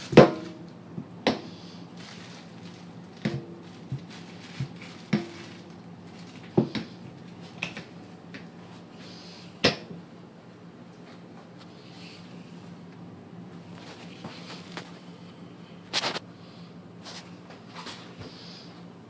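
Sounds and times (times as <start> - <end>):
knocks and clacks in plastic bag: 2.0 - 6.9.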